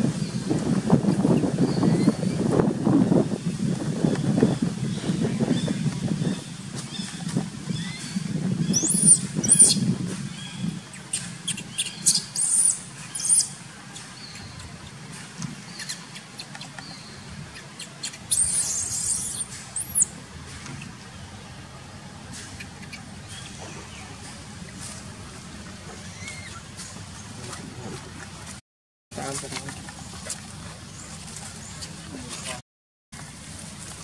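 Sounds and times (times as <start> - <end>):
baby monkey squealing: 8.7 - 9.8, 18.0 - 20.1, 26.1 - 26.6.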